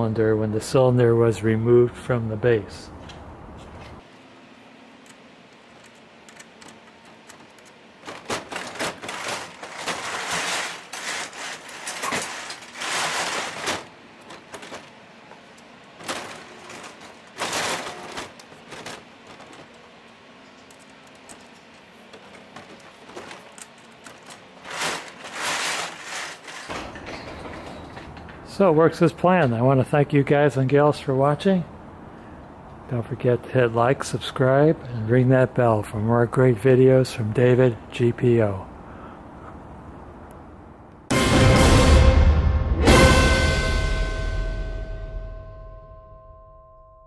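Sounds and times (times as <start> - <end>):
lock clicking and rattling: 5.1 - 8.9
garage door rattling open: 6.4 - 19.9, 22.2 - 28.8.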